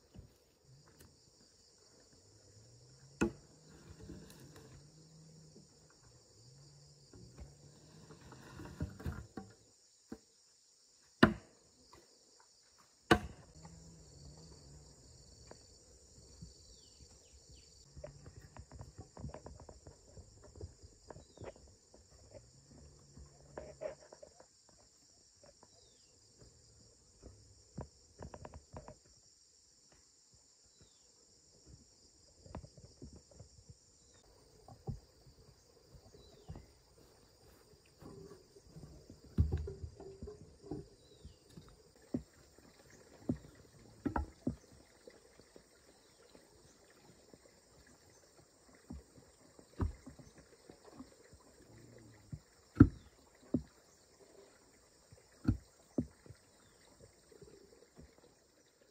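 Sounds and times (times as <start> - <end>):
insects chirring: 0.0 - 58.9
bamboo poles knocking: 11.2 - 11.6, 13.1 - 13.4, 38.7 - 40.8, 43.3 - 44.7.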